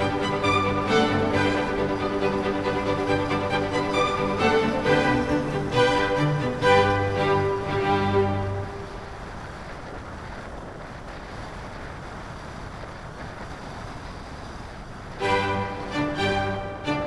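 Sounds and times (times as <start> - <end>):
background music: 0.0 - 9.0, 15.2 - 17.0
airflow rushing over microphone: 0.0 - 17.0.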